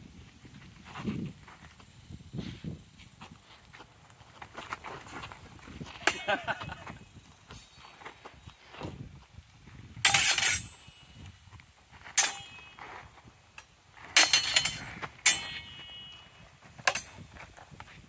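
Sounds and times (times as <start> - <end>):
swords clashing with ringing clangs: 10.0 - 11.1, 12.2 - 12.9, 14.1 - 17.2.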